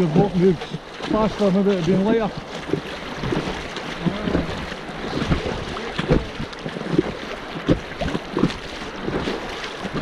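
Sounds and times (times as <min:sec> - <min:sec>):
river water splashing against kayak: 0:00.0 - 0:10.0
wind on microphone: 0:02.2 - 0:10.0.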